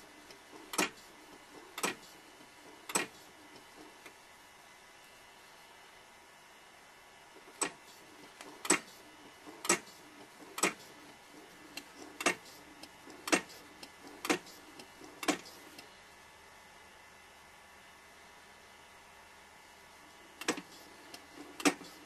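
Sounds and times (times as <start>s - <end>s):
microtome sharp mechanical clicks: 0.2s - 4.2s, 7.4s - 15.9s, 20.4s - 22.0s
faint mechanical ticks: 1.7s - 2.2s, 2.8s - 4.2s, 7.4s - 15.9s, 20.4s - 22.0s.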